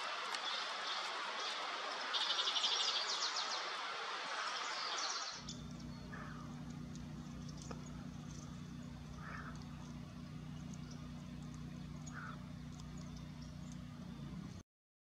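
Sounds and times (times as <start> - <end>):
small birds chirping: 0.0 - 14.6
steady low hum: 5.4 - 14.6.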